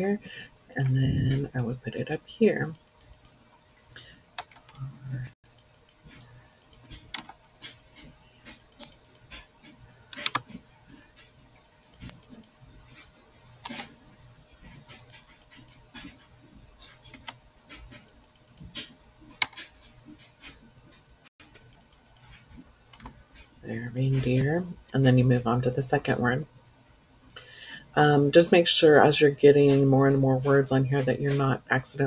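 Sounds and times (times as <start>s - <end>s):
keyboard typing: 2.6s - 3.4s, 4.4s - 4.8s, 5.4s - 10.6s, 11.8s - 12.5s, 13.6s - 13.9s, 14.9s - 16.2s, 17.0s - 19.7s, 21.4s - 23.2s.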